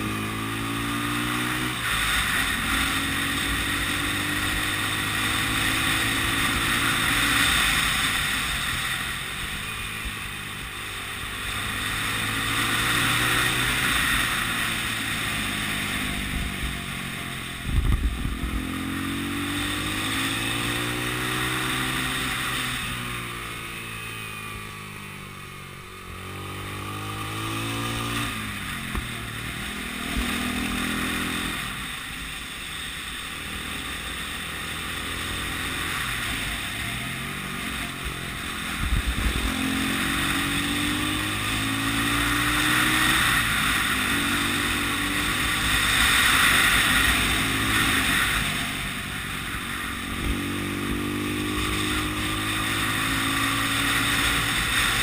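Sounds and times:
motorcycle engine: 0.0 - 55.0
wind noise: 11.6 - 22.9, 36.8 - 55.0.

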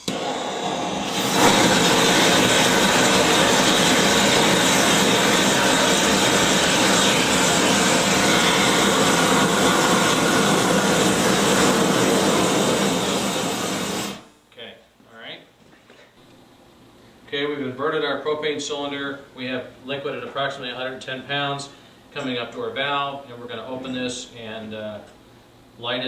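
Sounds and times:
gas flame rushing hiss: 0.0 - 14.3.

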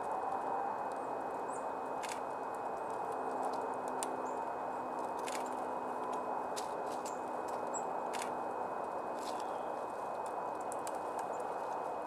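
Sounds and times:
outdoor background rush: 0.0 - 12.0
woodpecker tapping on wood: 9.2 - 11.7.

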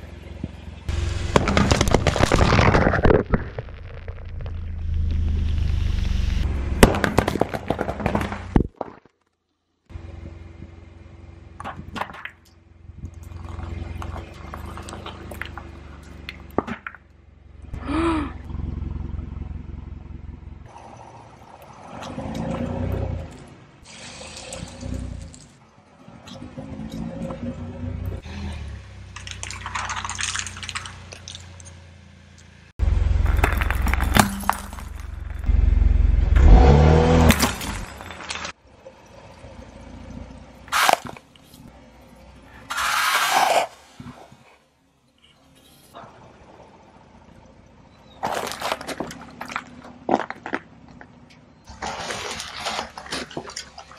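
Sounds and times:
car engine idling: 0.0 - 2.2, 9.9 - 25.9, 27.6 - 36.5
plastic eggs cracking under tire: 1.2 - 4.8, 6.8 - 9.4, 29.1 - 31.7, 33.2 - 35.5, 48.2 - 53.9
tyre crushing foam: 1.2 - 4.8
short voice sound: 17.8 - 18.4.

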